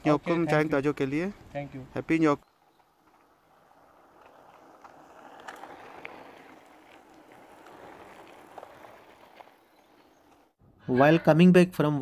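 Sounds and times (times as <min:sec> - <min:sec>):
bike tyre noise: 0:01.9 - 0:10.6.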